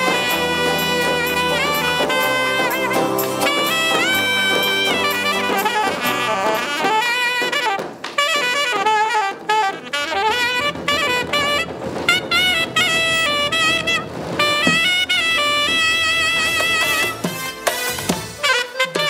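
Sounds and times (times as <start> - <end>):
bass drum beat: 0.0 - 7.6
saxophone melody: 0.0 - 19.0.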